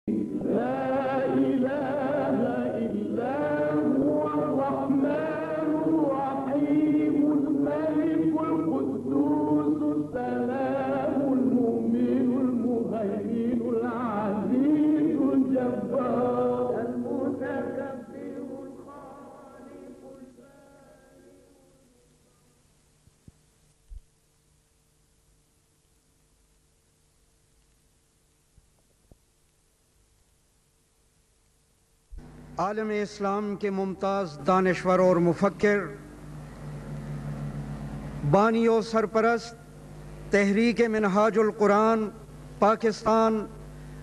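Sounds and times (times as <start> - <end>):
man chanting: 0.1 - 22.1, 32.6 - 36.1, 38.2 - 39.7, 40.3 - 43.6.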